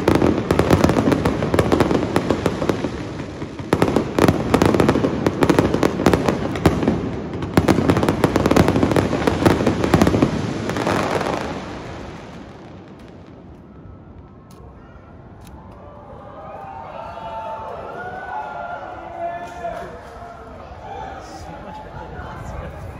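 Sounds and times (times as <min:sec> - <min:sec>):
fireworks crackling: 0:00.0 - 0:14.7.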